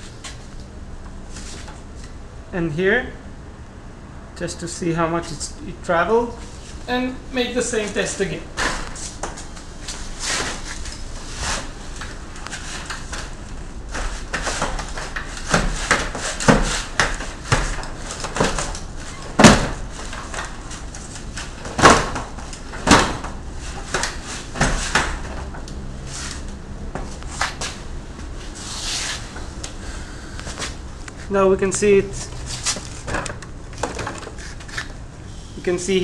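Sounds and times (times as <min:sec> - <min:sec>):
wheelchair clattering and knocking: 0:12.4 - 0:25.7, 0:32.4 - 0:35.0.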